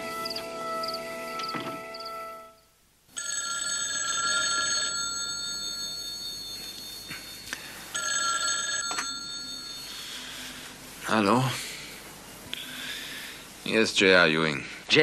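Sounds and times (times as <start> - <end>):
music cue: 0.0 - 2.6
telephone bell ringing: 3.1 - 10.3.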